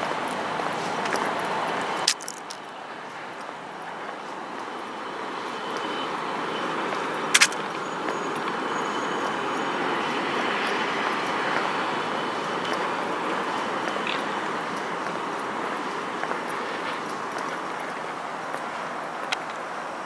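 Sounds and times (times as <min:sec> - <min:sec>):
traffic noise: 0:00.0 - 0:20.0
sharp click: 0:07.3 - 0:07.6.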